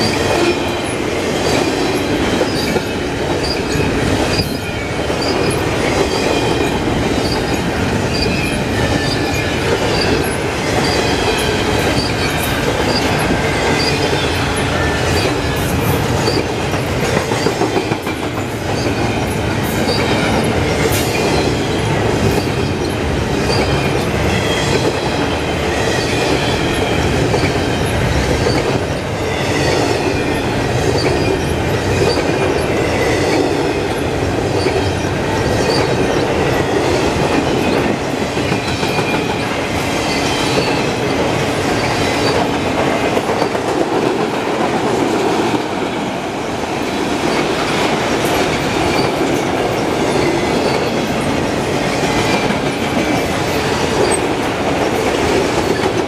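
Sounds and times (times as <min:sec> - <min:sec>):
steel wheels rumbling on rail: 0:00.0 - 0:56.0
high wavering wheel squeal: 0:03.4 - 0:15.5.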